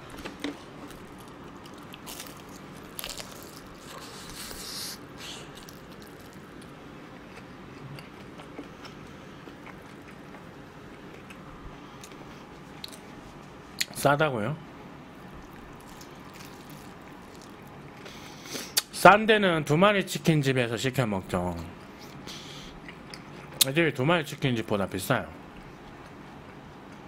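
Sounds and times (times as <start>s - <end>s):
chewing: 0.3s - 6.7s, 15.4s - 18.2s, 22.0s - 23.6s
crunchy bites of fried chicken: 0.9s - 6.8s, 15.4s - 18.9s.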